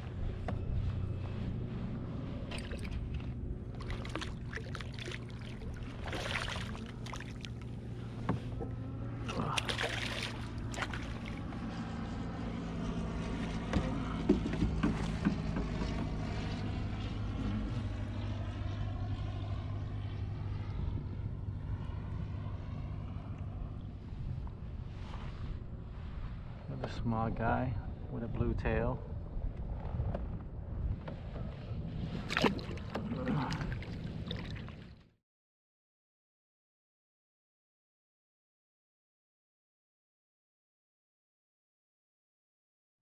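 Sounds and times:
steady low hum: 0.0s - 35.1s
fish splashing at water surface: 3.8s - 7.6s, 9.3s - 11.4s
wind noise on microphone: 29.1s - 34.9s.

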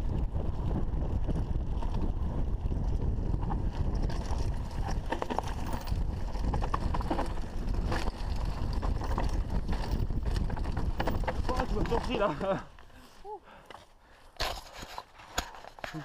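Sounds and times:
wind buffeting microphone: 0.0s - 12.5s
mountain bike rumbling on dirt: 0.0s - 13.0s
bike clicking and rattling: 0.0s - 16.0s.

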